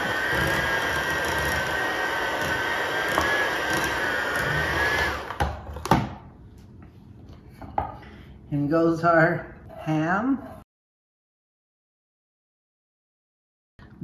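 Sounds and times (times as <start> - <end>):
electric hand mixer whining: 0.0 - 5.6.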